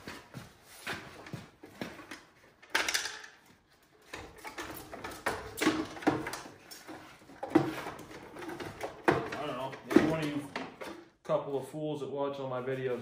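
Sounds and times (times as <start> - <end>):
plastic clunks and rattles: 4.1 - 11.1.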